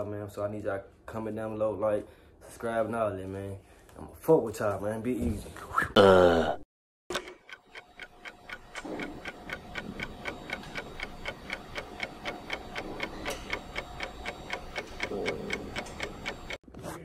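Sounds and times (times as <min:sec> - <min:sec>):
rapid clock ticking: 0:07.1 - 0:16.6.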